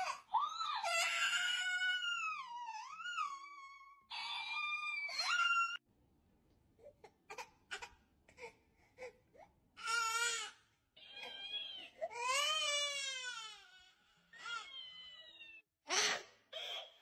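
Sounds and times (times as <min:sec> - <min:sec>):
infant crying: 0:09.8 - 0:17.0.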